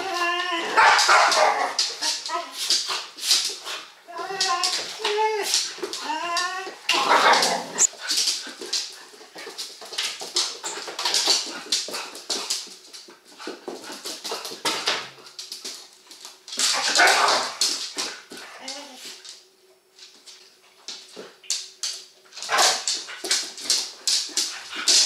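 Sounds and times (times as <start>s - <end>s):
puppy whining: 0.0s - 0.8s
claws clicking on floor: 0.0s - 25.0s
dogs scuffling: 0.0s - 25.0s.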